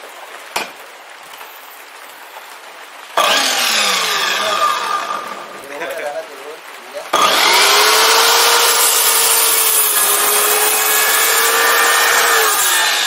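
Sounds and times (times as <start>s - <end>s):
miter saw cutting wood: 3.2s - 6.1s, 7.1s - 13.0s.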